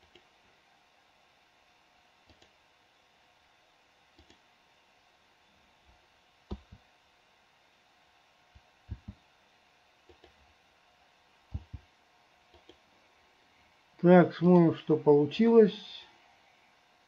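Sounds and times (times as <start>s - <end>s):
computer mouse clicking: 0.0s - 0.3s, 2.2s - 2.6s, 4.1s - 4.4s, 6.5s - 6.8s, 8.9s - 9.2s, 10.0s - 10.4s, 11.5s - 11.9s, 12.5s - 12.8s.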